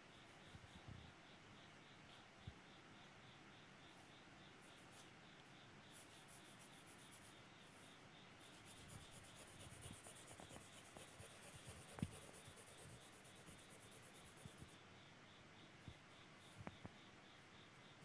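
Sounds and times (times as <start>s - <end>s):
pencil scratching on paper: 5.9s - 7.3s, 8.4s - 14.8s.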